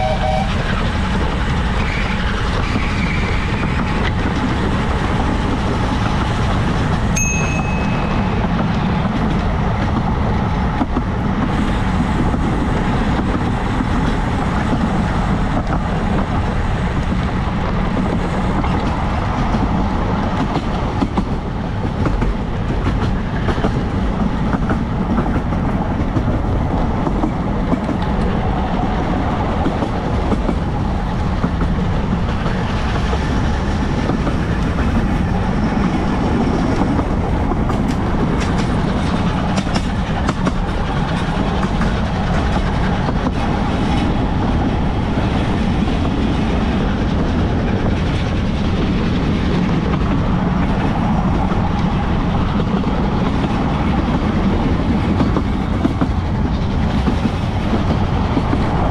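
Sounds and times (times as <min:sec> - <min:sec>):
wind buffeting: 0:00.0 - 0:58.9
short high tone: 0:07.2 - 0:08.4.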